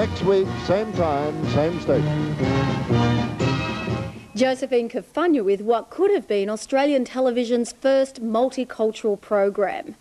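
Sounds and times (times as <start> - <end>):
music with held chords: 0.0 - 4.2.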